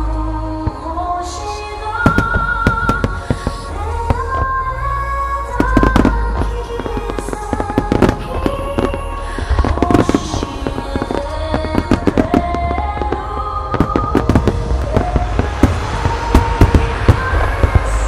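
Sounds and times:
fireworks bursting: 0.0s - 18.0s
slow sustained melody music: 0.0s - 18.0s.

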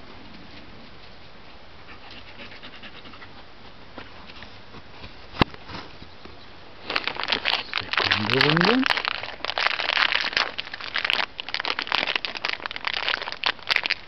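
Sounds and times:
dog panting and sniffing: 1.8s - 5.2s
dense crackling: 6.8s - 14.0s.

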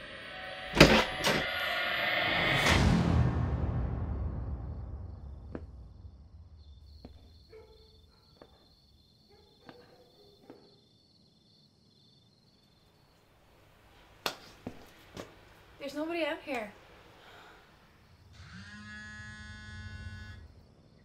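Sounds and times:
low drone: 0.0s - 6.7s
crickets chirping: 3.7s - 16.1s, 16.8s - 21.0s.

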